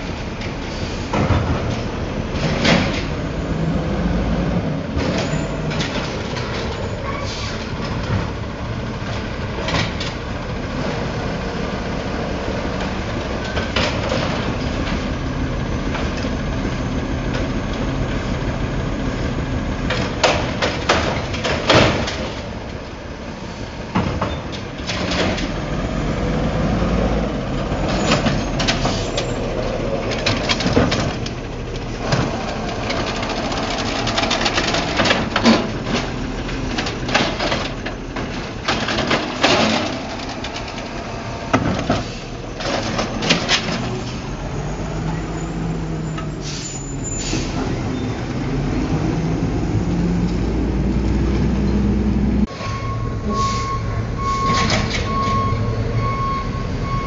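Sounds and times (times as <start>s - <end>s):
truck engine running: 25.5s - 46.0s.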